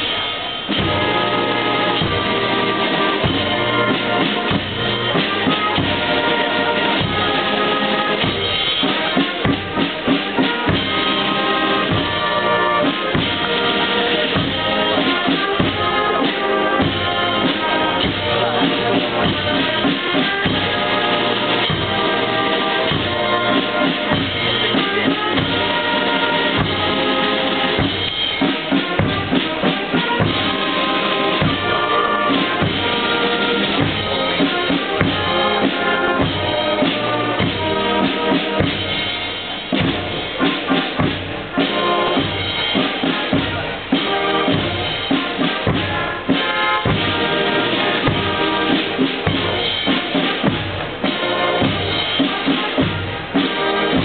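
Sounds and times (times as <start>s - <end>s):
parade band melody: 0.0s - 54.0s
snare drum strokes: 0.0s - 54.0s.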